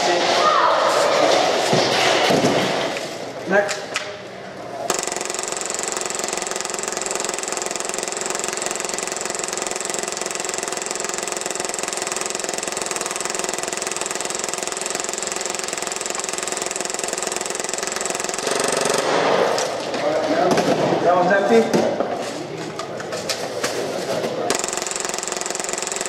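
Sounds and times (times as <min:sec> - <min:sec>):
airsoft pistol full-auto burst: 0:04.9 - 0:19.5, 0:24.5 - 0:26.0.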